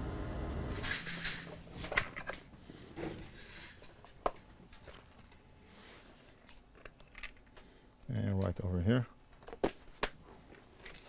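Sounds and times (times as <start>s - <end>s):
small parts clicking and clattering: 0.8s - 5.6s, 6.3s - 8.5s, 10.5s - 11.0s
plastic box being searched: 9.3s - 11.0s.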